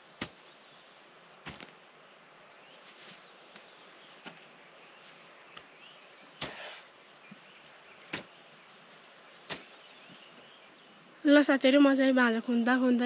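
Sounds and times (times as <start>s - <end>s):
insects chirring: 0.0s - 13.0s
hoe striking soil: 1.4s - 1.8s, 6.4s - 7.4s, 8.0s - 8.4s, 9.4s - 10.2s.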